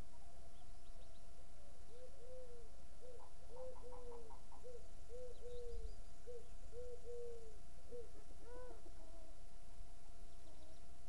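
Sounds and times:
dove cooing: 1.9 - 9.4.

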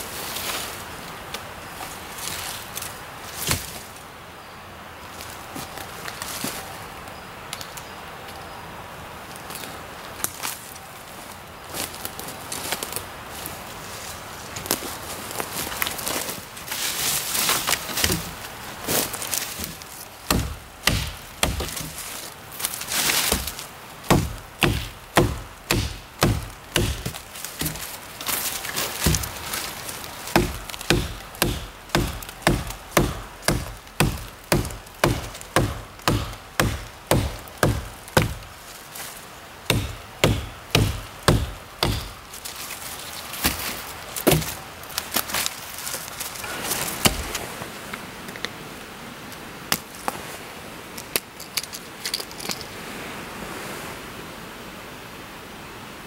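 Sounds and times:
hatchet chopping a branch: 18.0 - 18.4, 19.6 - 22.1, 23.1 - 28.0, 29.0 - 29.6, 30.3 - 38.6, 39.7 - 42.4, 43.4 - 44.6, 47.0 - 47.4.

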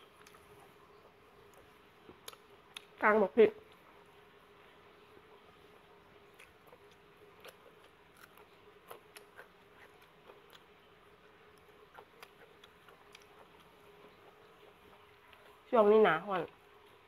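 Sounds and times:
faint steady hum: 0.0 - 17.0
chewing noises: 6.1 - 15.6.

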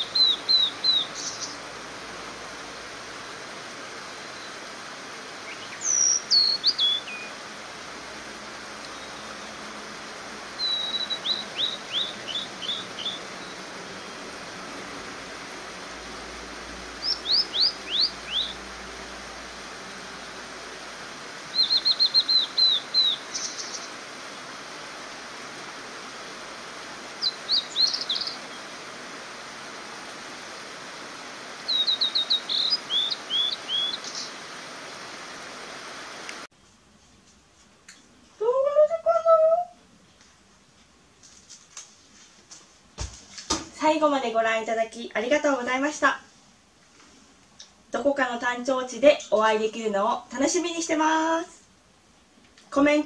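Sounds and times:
hiss of mountain stream: 0.0 - 38.9, 45.2 - 48.3
bird singing high clear notes: 10.6 - 13.2, 17.0 - 18.6, 21.5 - 23.9, 31.7 - 34.3.

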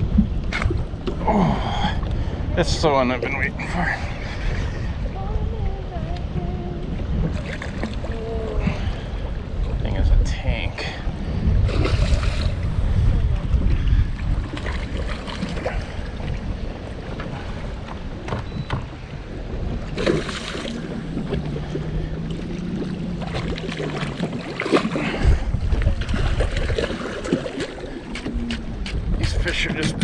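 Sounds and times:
low steady hum: 0.0 - 29.8
wind on microphone: 0.0 - 30.0
fish thrashing and splashing: 19.9 - 21.8, 23.1 - 28.9.

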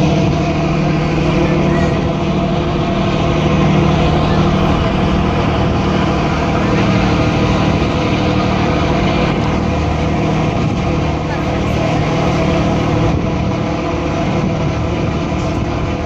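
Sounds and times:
boat engines droning: 0.0 - 16.0
wake water rushing: 0.0 - 16.0
wind noise: 0.0 - 16.0.

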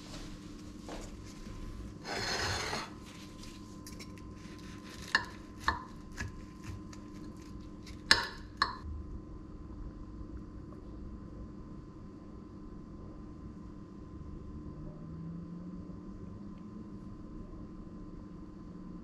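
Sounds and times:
knife scraping on plate: 2.0 - 3.2.

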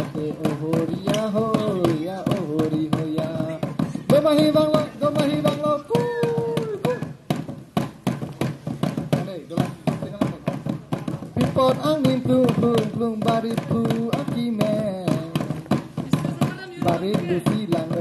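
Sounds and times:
people singing: 0.0 - 7.0, 16.8 - 18.0
fast steady drumbeat: 0.0 - 18.0.

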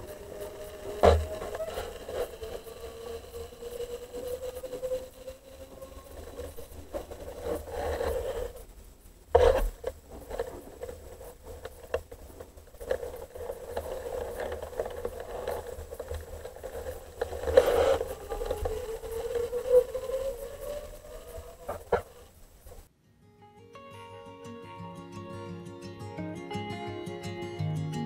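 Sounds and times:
loud crackling scrapes: 0.0 - 8.7, 9.3 - 22.9
steady whining hum underwater: 0.0 - 22.9.

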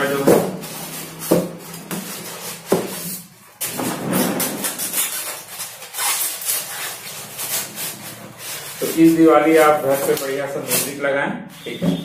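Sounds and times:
foam packing rubbing and scraping: 0.0 - 12.0.

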